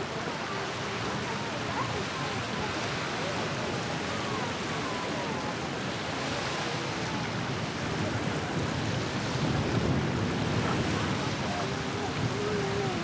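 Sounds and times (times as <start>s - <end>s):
boat motors and wake water: 0.0s - 13.0s
wind on microphone: 0.0s - 13.0s.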